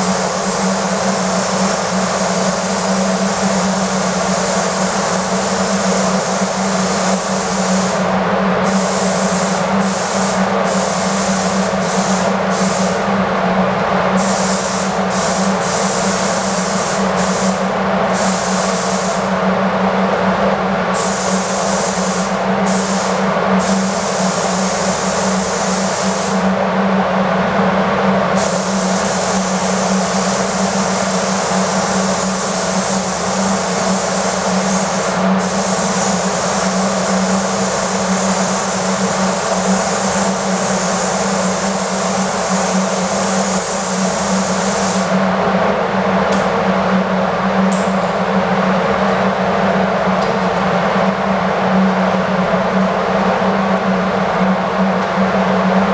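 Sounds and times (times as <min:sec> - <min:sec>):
spray gun hissing: 0:00.0 - 0:13.0, 0:14.2 - 0:17.6, 0:18.2 - 0:19.3, 0:21.0 - 0:26.4, 0:28.4 - 0:45.2
steady low hum: 0:00.0 - 0:55.9.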